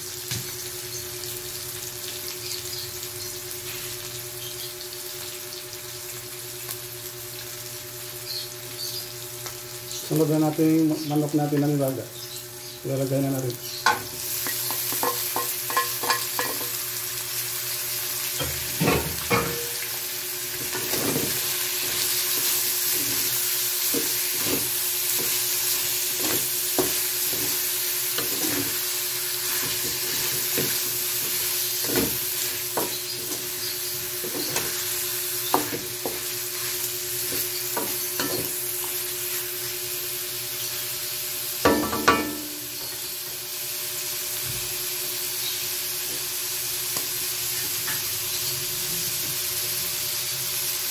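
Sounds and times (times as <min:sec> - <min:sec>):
food sizzling in hot oil: 0:00.0 - 0:50.9
wooden spatula scraping wok: 0:28.2 - 0:28.8.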